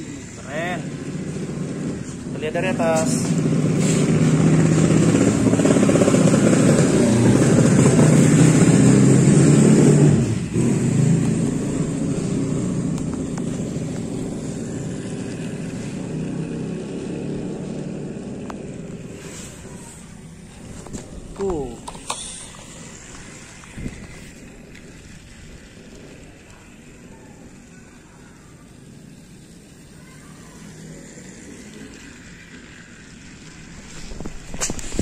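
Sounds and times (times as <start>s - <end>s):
toy train motor whirring: 0.0s - 35.0s.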